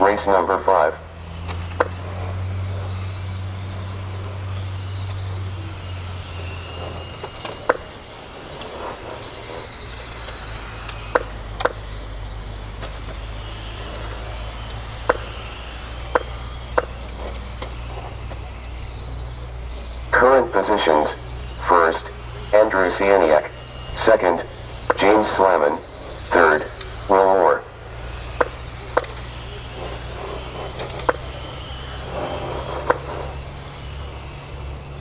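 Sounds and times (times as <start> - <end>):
high whine of toy car motors: 0.0 - 35.0
steady low hum: 0.0 - 35.0
sharp clicks and knocks: 16.1 - 18.4, 28.4 - 30.0, 30.6 - 31.3, 32.8 - 33.2.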